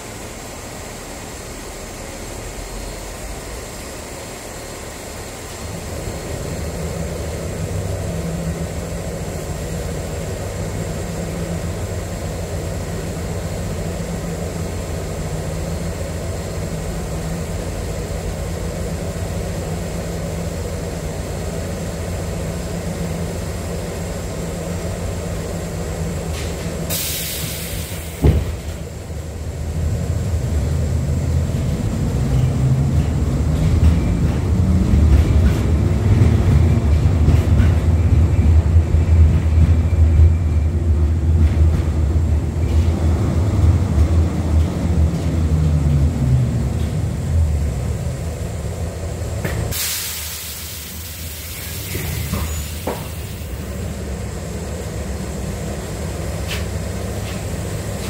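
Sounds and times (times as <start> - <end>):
tram motor and wheels humming: 0.0 - 58.0
short hiss: 26.4 - 28.2, 49.7 - 53.5.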